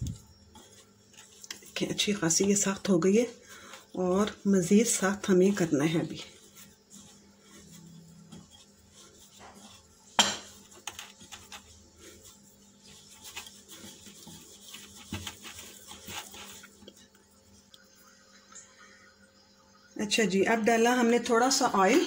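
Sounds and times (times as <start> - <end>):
hands kneading dough: 0.0 - 18.2
glass bowl knocking and clinking: 10.2 - 10.5.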